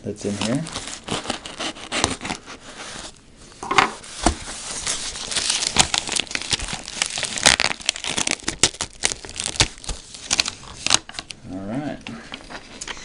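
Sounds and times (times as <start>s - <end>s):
packing materials rustling and crinkling: 0.0s - 11.3s
sharp crackles: 4.8s - 11.0s.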